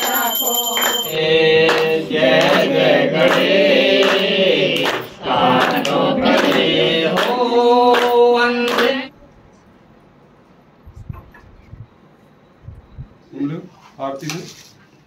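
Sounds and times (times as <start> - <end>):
group singing devotional song: 0.0 - 9.1.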